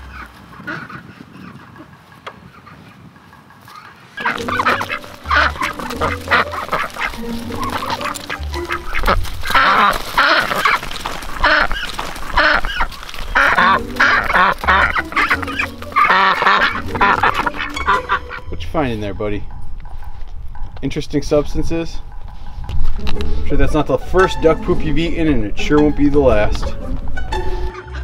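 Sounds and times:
ducks quacking loudly: 0:00.0 - 0:18.6.

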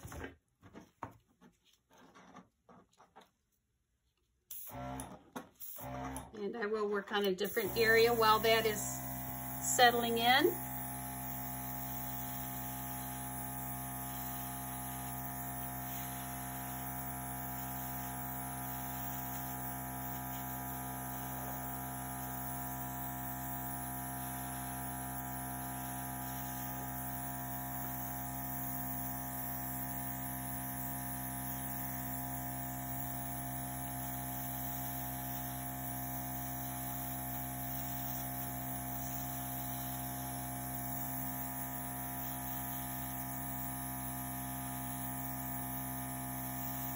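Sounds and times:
compressor humming: 0:07.2 - 0:28.5.

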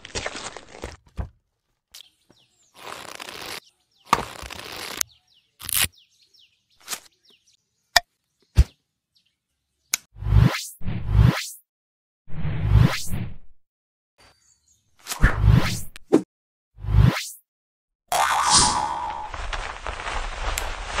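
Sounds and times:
rustling handling noise: 0:19.3 - 0:21.0.

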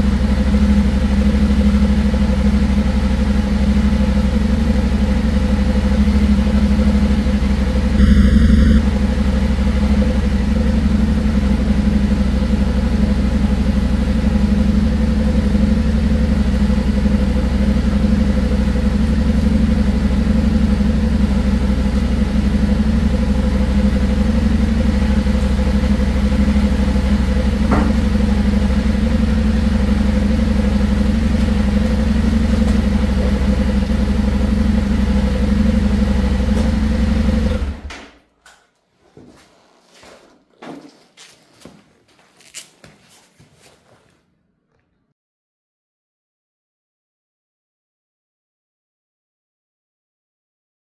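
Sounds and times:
motorcycle engine idling: 0:00.0 - 0:37.9.

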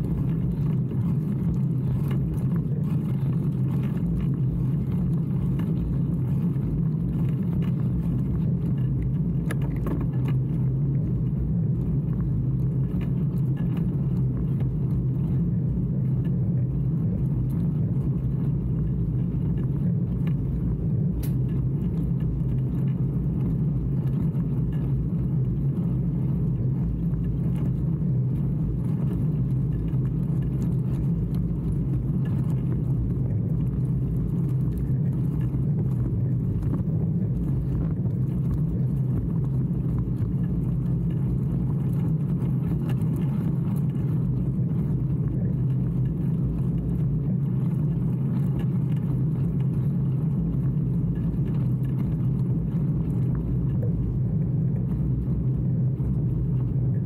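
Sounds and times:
bicycle tyres on wet road: 0:00.0 - 0:57.0
wind noise: 0:00.0 - 0:57.0
faint clicks: 0:16.0 - 0:55.0.

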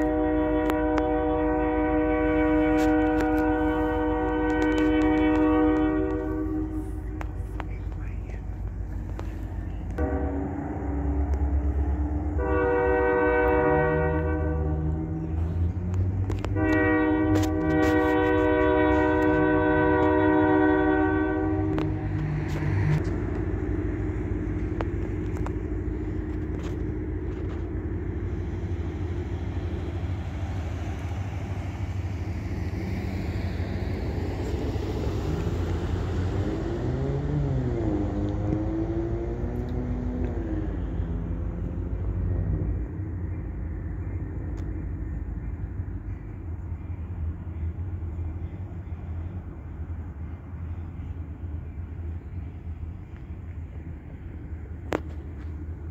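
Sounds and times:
train horn: 0:00.0 - 0:07.7, 0:09.9 - 0:23.0
diesel locomotive rumbling: 0:00.0 - 0:55.9.

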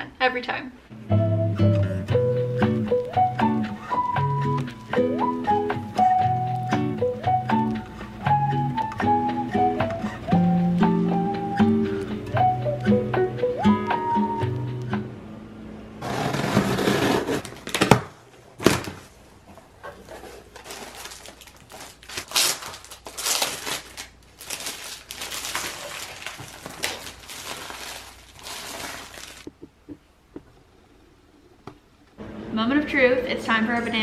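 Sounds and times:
wrapping crinkling and tearing: 0:20.0 - 0:29.5.

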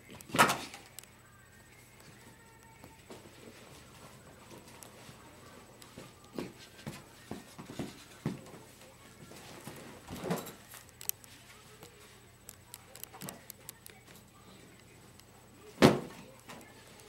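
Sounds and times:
people scuffling on carpet: 0:02.9 - 0:12.2.

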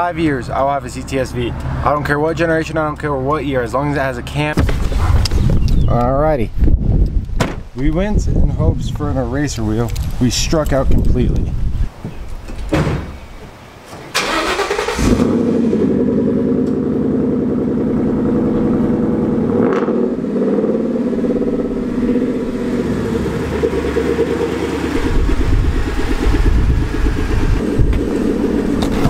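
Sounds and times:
car engine starting and running: 0:13.9 - 0:29.0
deep exhaust rumble: 0:14.4 - 0:29.0.

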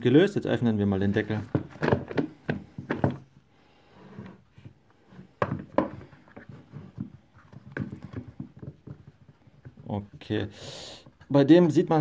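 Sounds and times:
plastic rustling and clatter: 0:01.2 - 0:03.3, 0:04.6 - 0:10.0.

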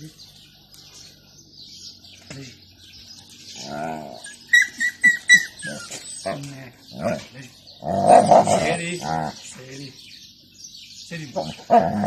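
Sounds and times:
dog whining and howling: 0:03.6 - 0:06.4
dog squeaks: 0:04.2 - 0:06.4.

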